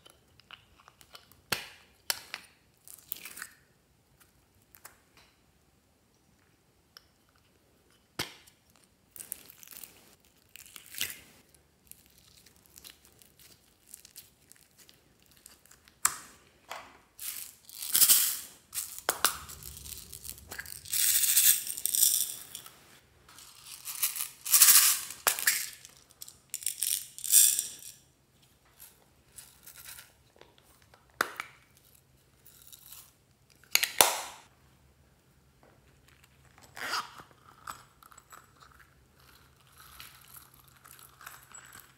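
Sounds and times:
foam beads crackling: 17.2s - 27.8s.

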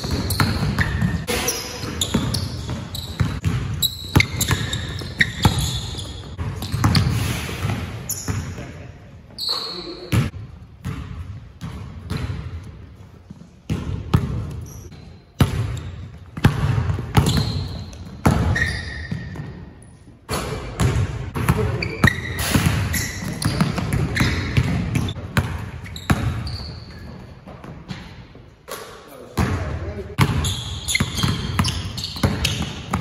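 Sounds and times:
basketballs bouncing on wood floor: 0.0s - 8.8s, 10.0s - 19.7s, 20.7s - 28.2s, 29.4s - 33.0s
short high squeaks: 3.8s - 7.5s, 9.4s - 10.1s.

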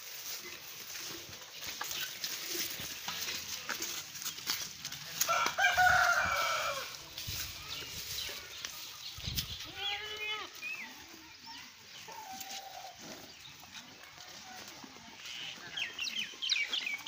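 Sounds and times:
rooster crowing: 5.2s - 7.0s.

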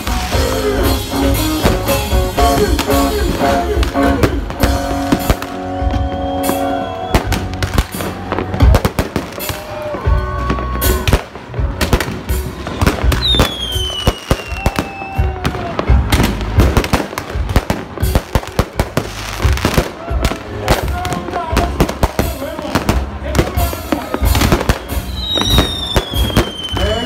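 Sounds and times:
fireworks bangs and cracks: 0.0s - 27.0s
music: 0.0s - 27.0s
falling firework whistle: 4.1s - 11.1s, 12.8s - 16.0s, 23.9s - 27.0s.

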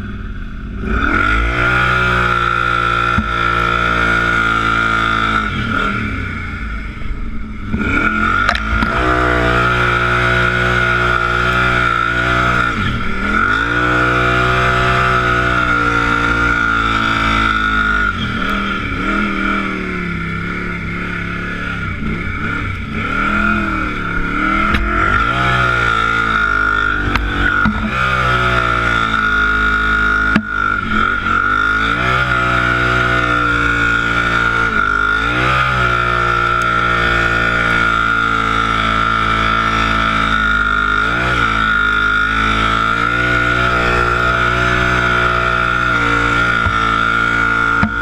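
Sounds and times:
atv engine revving: 0.0s - 48.0s
high-pitched whine: 0.0s - 48.0s.

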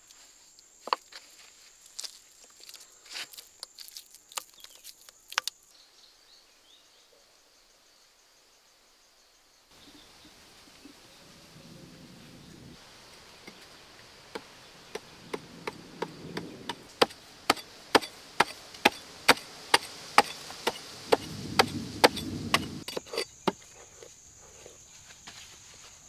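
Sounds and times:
chisel chopping into hard earth: 14.3s - 23.6s.

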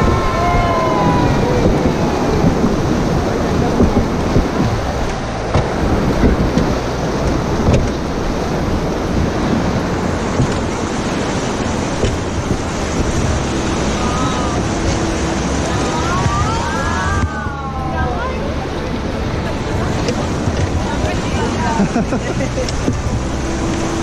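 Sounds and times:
people shouting: 0.0s - 2.4s, 14.0s - 14.7s, 15.6s - 18.3s
river rapids rushing: 0.0s - 24.0s.

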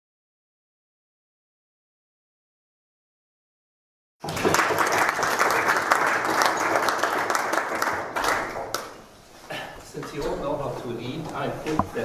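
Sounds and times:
audience applauding: 4.2s - 9.0s.

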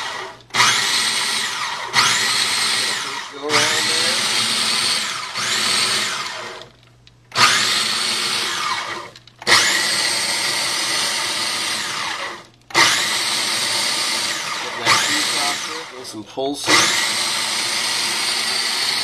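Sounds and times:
food processor whining: 0.0s - 19.0s.

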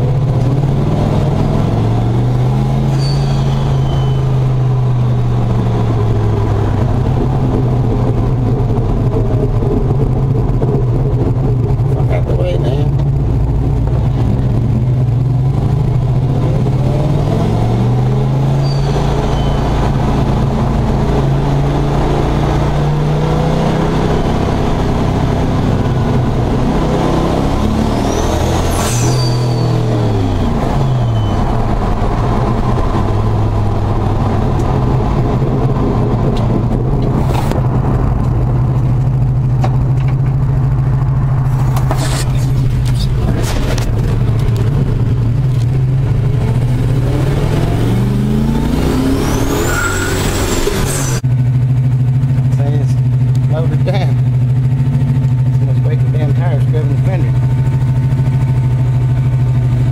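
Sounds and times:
truck engine accelerating: 0.0s - 59.9s.

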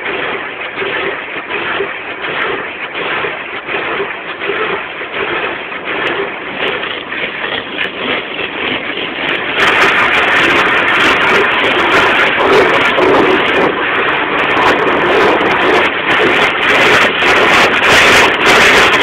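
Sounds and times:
water spray on car: 0.0s - 19.0s.

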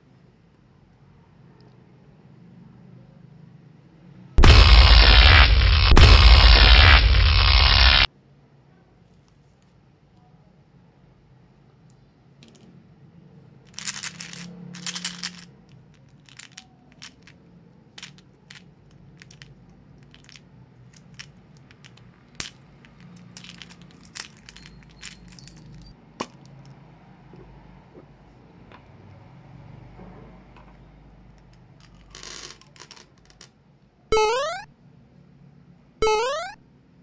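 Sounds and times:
candies rattling in plastic tube: 13.7s - 26.5s, 31.8s - 33.5s.

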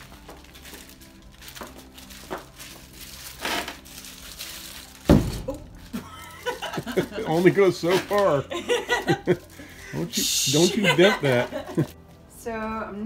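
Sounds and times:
plastic wrapping crinkling: 0.0s - 12.2s
heavy thump of board knocking: 5.1s - 5.6s.

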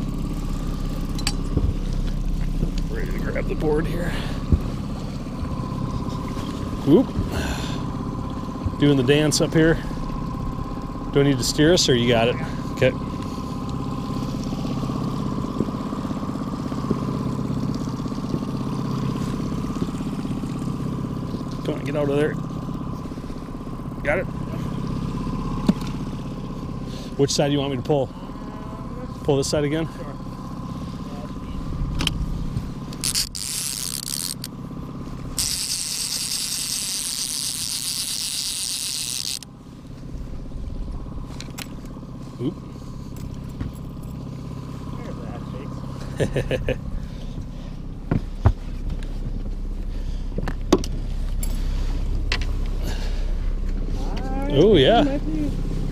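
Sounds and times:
outboard motor humming: 0.0s - 55.9s
fishing reel whirring: 32.8s - 39.5s.

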